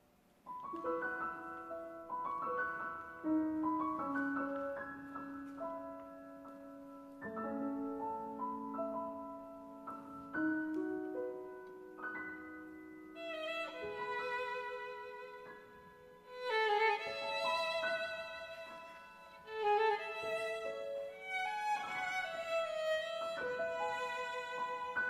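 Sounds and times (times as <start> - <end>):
grand piano playing: 0.5 - 25.0
violin with vibrato: 13.2 - 15.6, 16.2 - 25.0.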